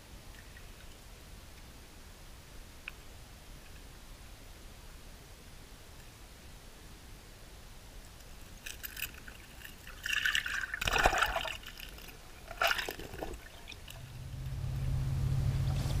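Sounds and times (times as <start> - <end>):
water gurgling and sloshing: 8.6 - 16.0.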